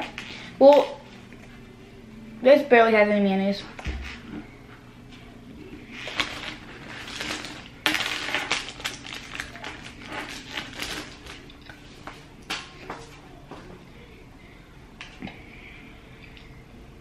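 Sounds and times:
plastic bag crinkling: 0:05.9 - 0:11.8.

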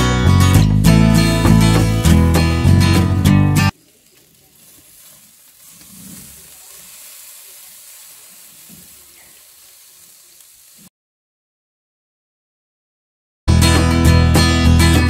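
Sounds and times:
chicken sizzling on grill: 0:01.1 - 0:10.9.

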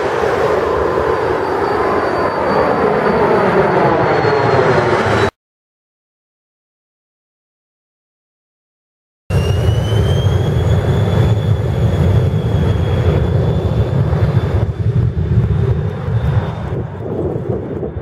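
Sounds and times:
jet engines whining and rumbling: 0:00.0 - 0:05.4, 0:09.3 - 0:18.0.

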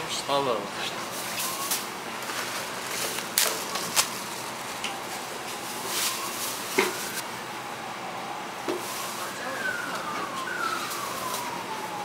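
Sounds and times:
supermarket hubbub: 0:00.1 - 0:07.2.

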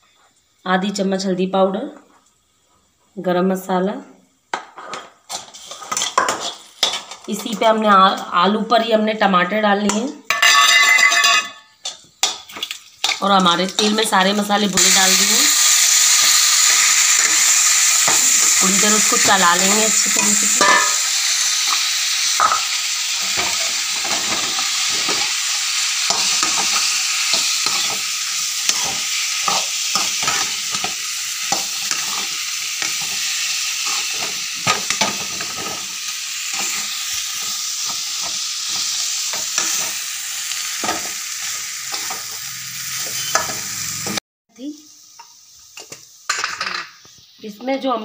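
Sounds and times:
food sizzling in oil: 0:00.0 - 0:48.0
spatula scraping pan: 0:04.8 - 0:07.6, 0:23.2 - 0:35.9, 0:40.8 - 0:44.2.

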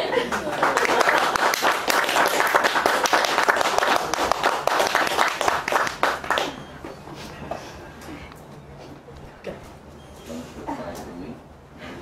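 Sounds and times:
people clapping: 0:00.0 - 0:06.9.

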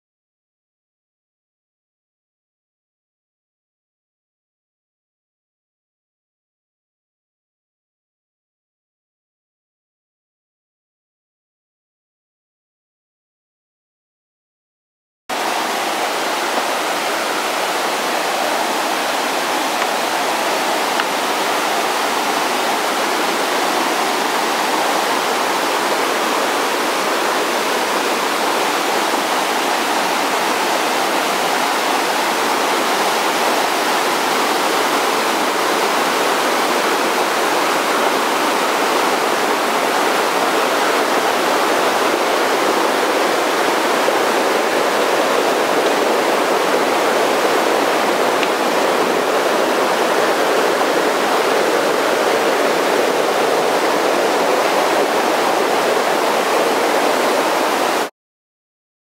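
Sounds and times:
river rushing over rocks: 0:15.3 - 0:58.1.

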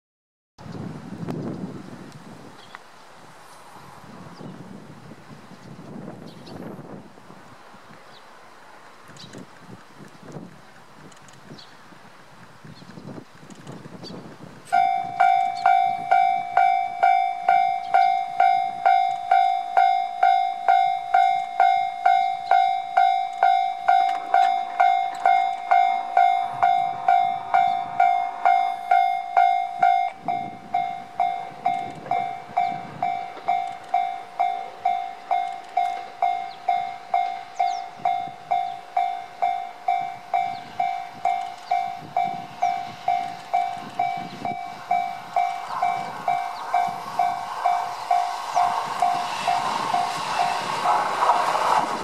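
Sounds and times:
faint diesel railcar approaching: 0:00.6 - 0:52.0
level crossing alarm dinging: 0:14.7 - 0:50.8.

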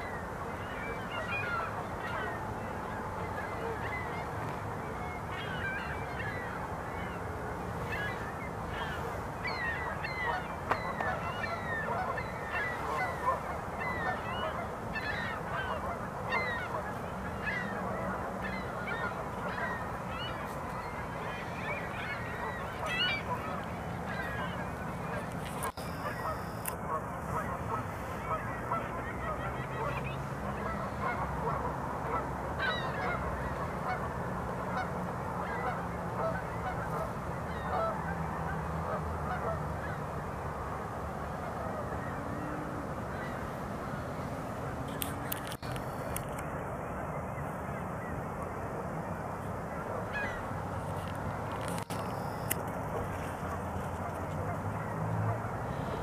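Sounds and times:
birds honking: 0:07.8 - 0:33.2, 0:50.1 - 0:50.5.

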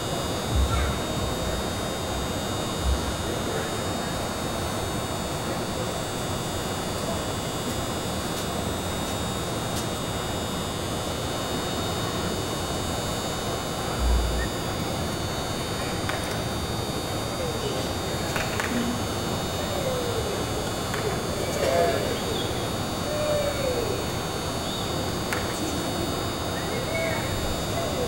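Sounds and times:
faint electrical hum: 0:00.0 - 0:28.0
indistinct murmur: 0:00.0 - 0:28.0
dull low thump: 0:00.5 - 0:01.3.

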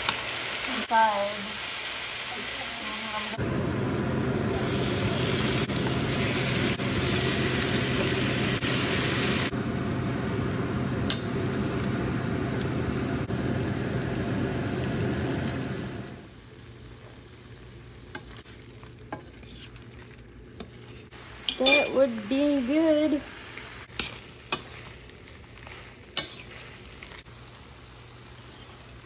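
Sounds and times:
shrimp sizzling in a skillet: 0:00.0 - 0:09.5, 0:20.8 - 0:29.0.

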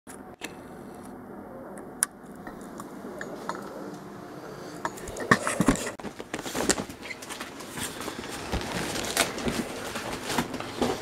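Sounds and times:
tent fabric rustling and scraping: 0:05.8 - 0:11.0.

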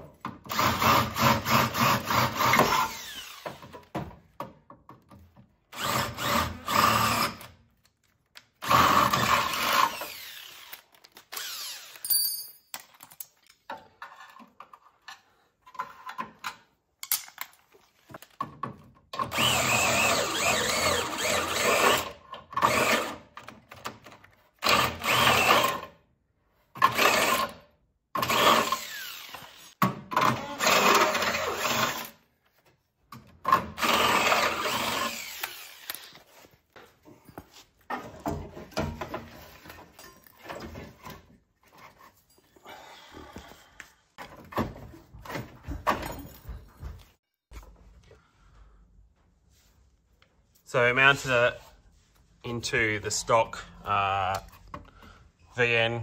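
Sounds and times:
drill boring through steel: 0:00.5 - 0:03.5, 0:05.8 - 0:07.4, 0:08.6 - 0:12.0, 0:19.3 - 0:23.2, 0:24.6 - 0:25.8, 0:28.2 - 0:29.8, 0:33.8 - 0:36.1.

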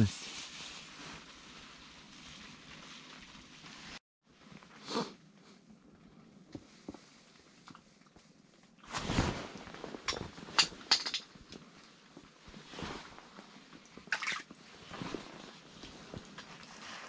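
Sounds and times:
rustling handling noise: 0:08.2 - 0:17.0
water splashing: 0:14.1 - 0:14.6.

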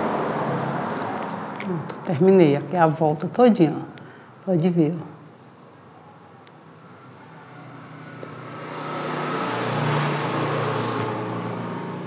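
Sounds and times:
passing vehicle engine hum: 0:00.0 - 0:02.7, 0:06.9 - 0:12.0.

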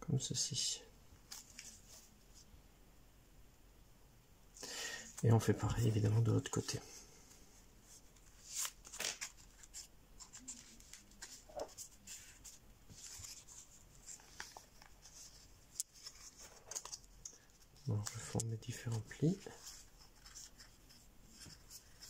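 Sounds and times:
paper rustling and crinkling: 0:01.2 - 0:02.1, 0:07.9 - 0:22.0
paper crackles: 0:08.2 - 0:22.0.

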